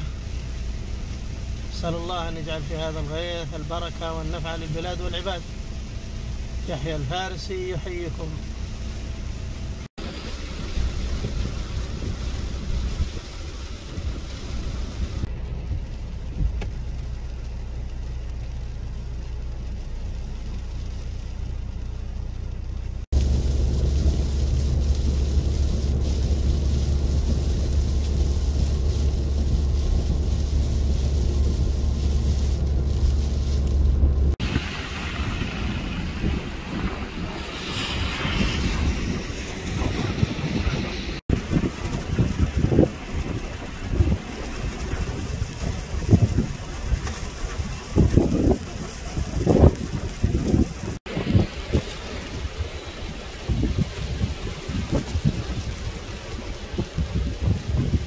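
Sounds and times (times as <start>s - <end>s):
car road rumble from inside: 0.0s - 58.0s
rain outdoors: 0.0s - 58.0s
wind noise on microphone: 9.9s - 16.9s, 23.1s - 58.0s.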